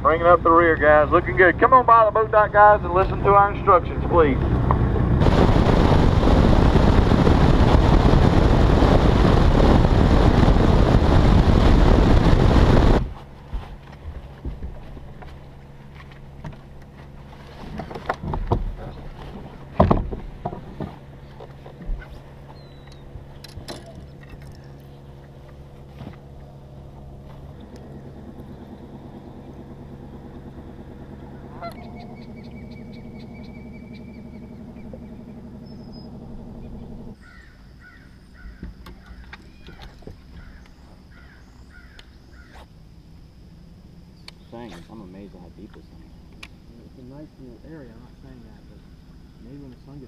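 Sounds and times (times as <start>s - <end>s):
boat motor running: 0.0s - 50.0s
knocks of gear on deck: 17.7s - 22.2s
short bird calls: 22.0s - 23.1s, 31.3s - 42.7s.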